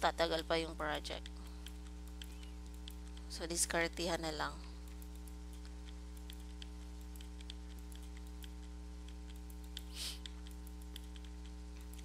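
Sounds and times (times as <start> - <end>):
steady low hum: 0.0 - 12.0
computer mouse clicking: 0.9 - 3.4, 4.8 - 12.0.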